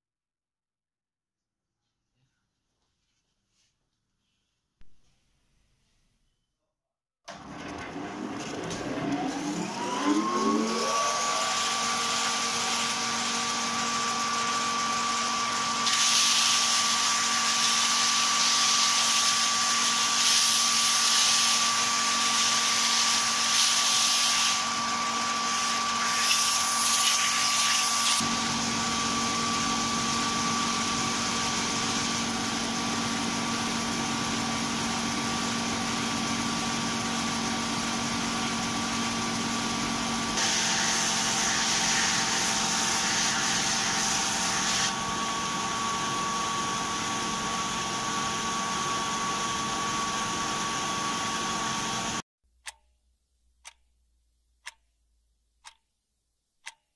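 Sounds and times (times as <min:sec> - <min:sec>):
woodworking machine motor whine: 0:07.3 - 0:52.2.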